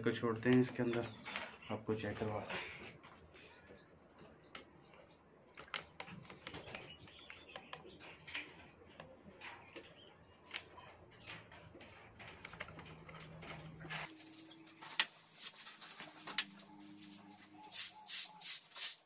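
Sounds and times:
faint bird chirps: 0:14.1 - 0:19.0.

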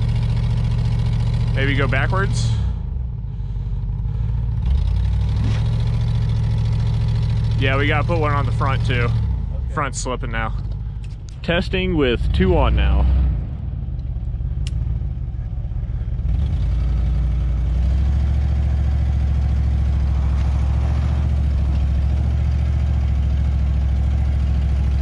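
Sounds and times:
engine revving under load: 0:00.0 - 0:25.0.

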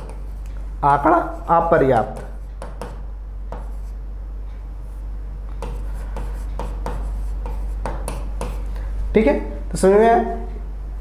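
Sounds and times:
steady low hum: 0:00.0 - 0:11.0
pen scratching on touchscreen: 0:01.2 - 0:04.0, 0:05.6 - 0:08.7.

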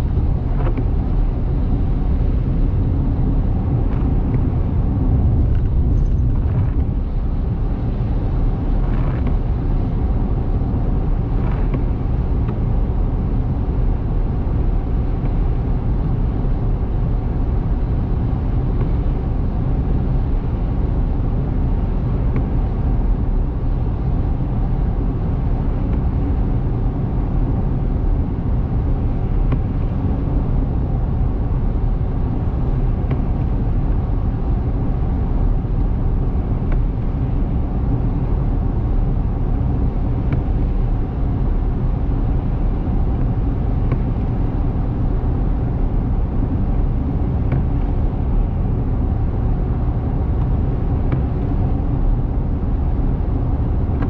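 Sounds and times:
car road noise rumble: 0:00.0 - 0:54.0.

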